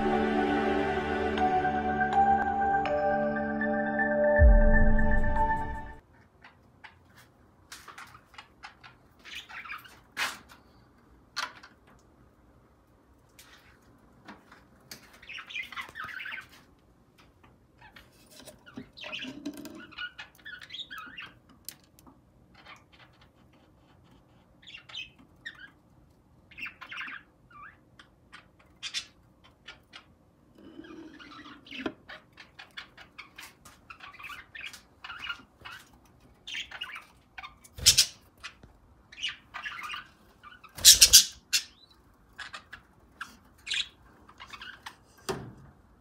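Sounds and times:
budgerigars chattering and squawking: 0:30.8 - 0:44.9.

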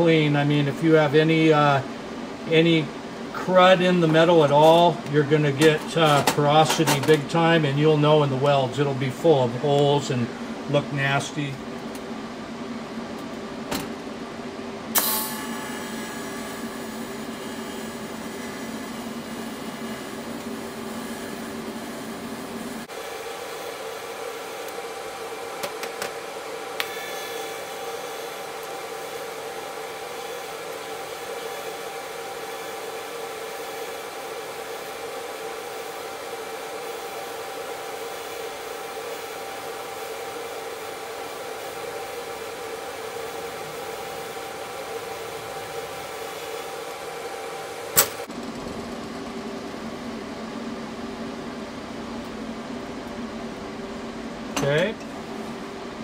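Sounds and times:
welding arc buzzing: 0:14.9 - 0:48.4.

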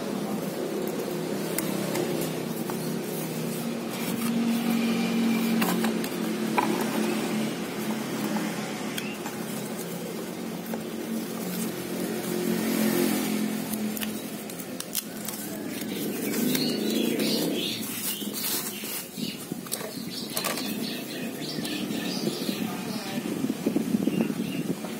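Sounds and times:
low mechanical drone: 0:00.0 - 0:18.4.

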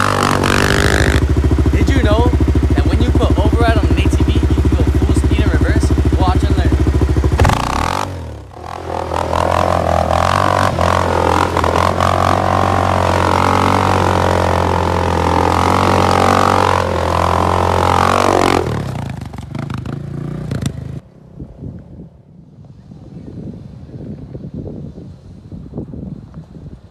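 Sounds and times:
atv engine running: 0:00.0 - 0:21.1.

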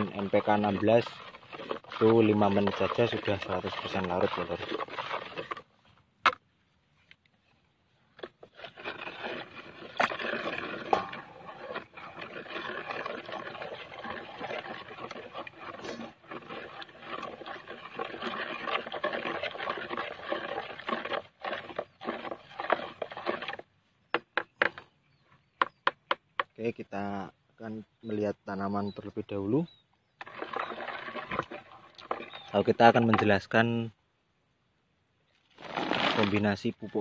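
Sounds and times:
liquid sloshing in bucket: 0:00.0 - 0:06.0, 0:08.2 - 0:23.7, 0:30.1 - 0:33.6, 0:35.4 - 0:37.0
stick scraping and knocking bucket: 0:00.0 - 0:06.4, 0:08.1 - 0:26.6, 0:30.2 - 0:33.8, 0:35.5 - 0:37.0.

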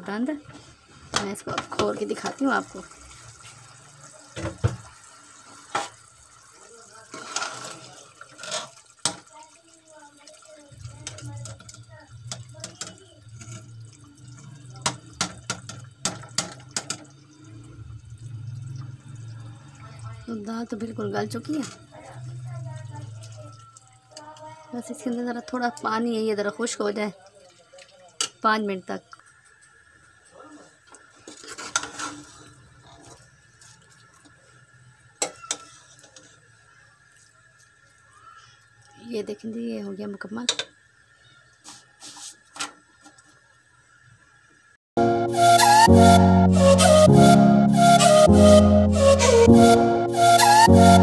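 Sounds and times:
ladle scraping thick food in pot: 0:31.3 - 0:32.5.

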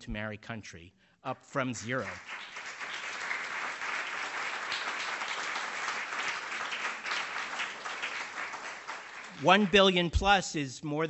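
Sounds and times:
audience applauding: 0:01.8 - 0:10.2.

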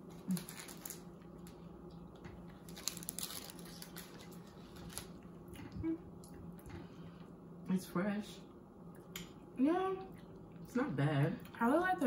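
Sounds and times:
faint steady hum: 0:00.0 - 0:12.0
people chewing: 0:00.1 - 0:07.4.

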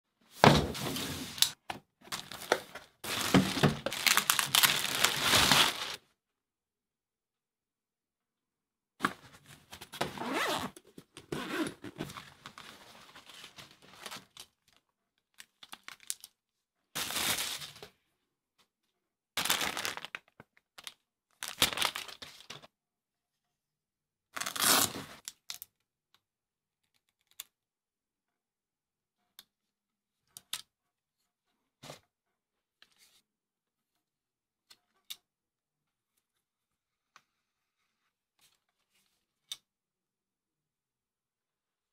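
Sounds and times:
fabric bag rustling: 0:03.0 - 0:06.0
zipper being unzipped: 0:10.0 - 0:12.1.

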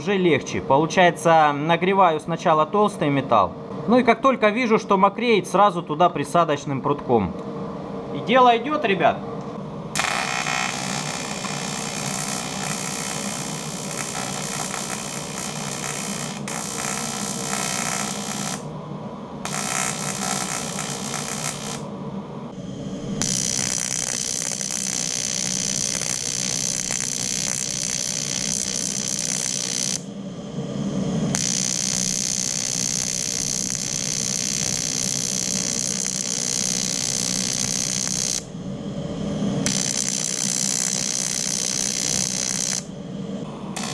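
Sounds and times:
welding arc buzzing: 0:09.9 - 0:18.7, 0:19.4 - 0:21.9, 0:23.2 - 0:30.1, 0:31.3 - 0:38.5, 0:39.6 - 0:42.9.

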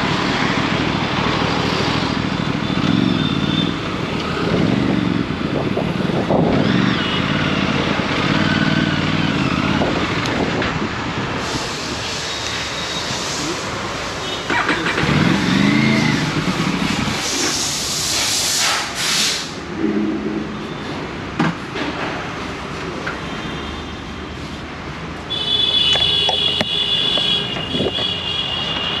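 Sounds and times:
motorcycle engine revving: 0:00.0 - 0:11.2, 0:14.5 - 0:18.3
loud hiss: 0:11.3 - 0:14.3, 0:16.3 - 0:19.7.

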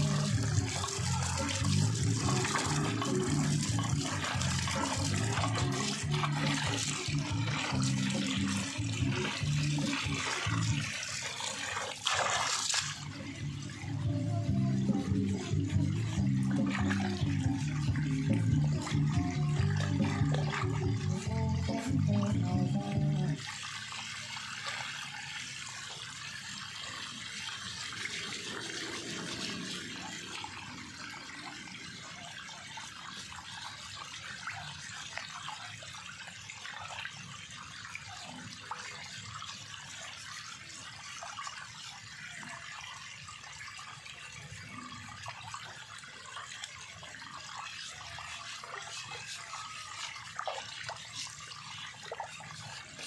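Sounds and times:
water splashing in metal basin: 0:00.0 - 0:53.0
running water hiss: 0:40.5 - 0:53.0.

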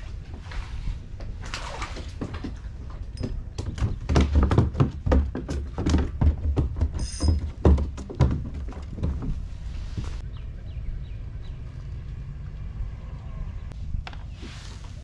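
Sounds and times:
kayak hull knocking against dock: 0:03.2 - 0:09.4.

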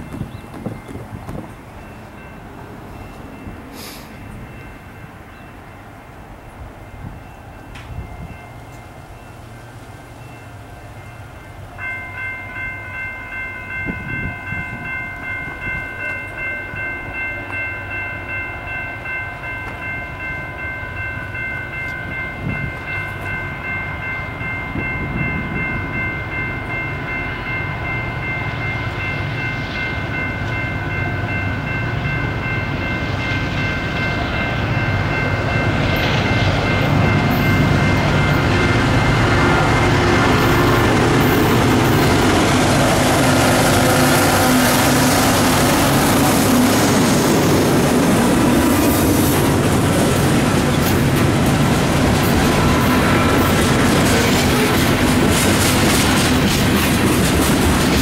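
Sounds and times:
crossing warning bell ringing: 0:00.0 - 0:58.0
diesel freight train rumble: 0:00.0 - 0:58.0.

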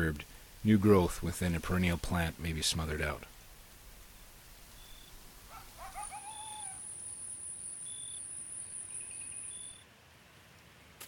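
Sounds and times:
insect high trill: 0:06.1 - 0:09.8.

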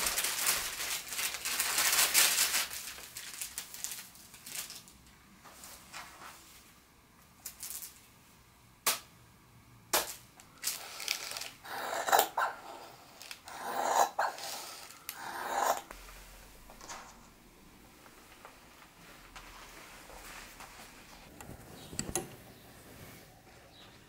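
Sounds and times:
paper rustling: 0:00.0 - 0:06.7, 0:15.9 - 0:22.0.

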